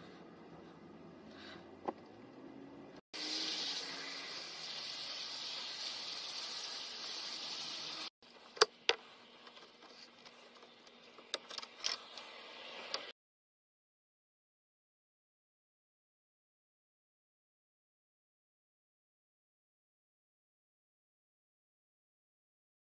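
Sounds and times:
water spraying hiss: 3.2 - 8.1.

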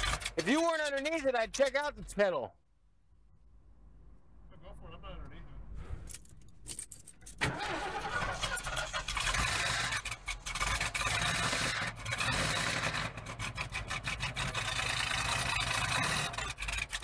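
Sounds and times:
engine idling: 7.4 - 17.0.

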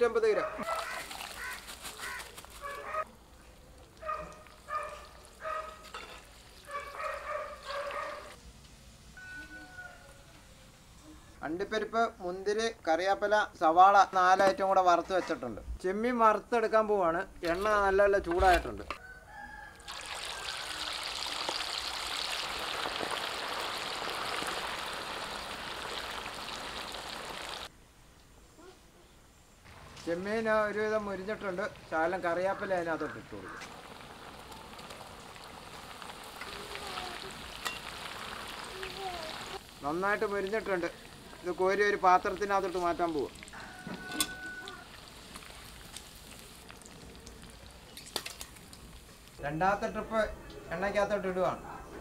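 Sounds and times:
frying oil sizzling: 4.5 - 6.7, 19.8 - 27.7, 30.2 - 49.4.

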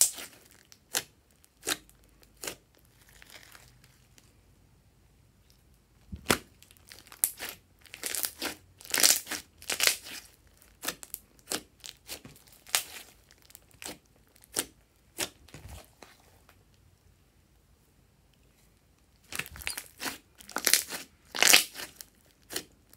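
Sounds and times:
slime crackling and popping: 0.0 - 4.0, 6.2 - 15.5, 19.2 - 22.9.

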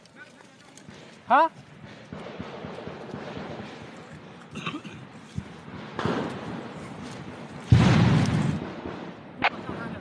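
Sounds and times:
loud bang: 5.6 - 10.0
sharp crack: 5.6 - 10.0.

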